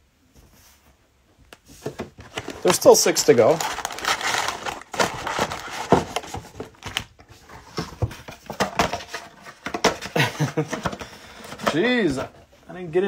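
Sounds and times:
cellophane packs crinkling: 2.2 - 7.2.

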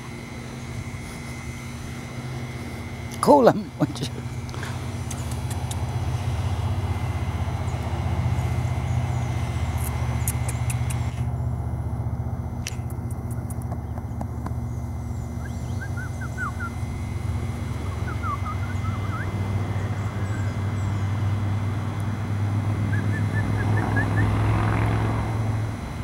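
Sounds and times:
low engine drone: 0.0 - 26.0
small birds chirping: 3.8 - 11.4, 12.7 - 24.4.

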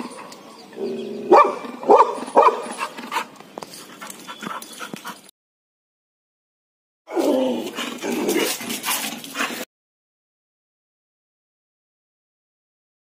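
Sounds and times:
dog barking: 1.3 - 2.8.

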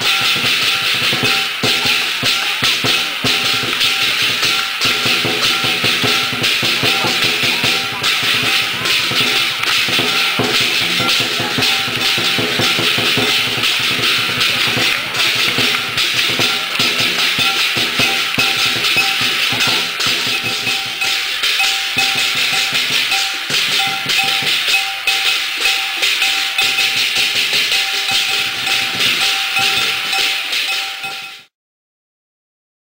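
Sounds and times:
clanging metal percussion: 0.0 - 31.5
rapid drumming: 0.0 - 31.5
ringing tone: 15.5 - 31.5.

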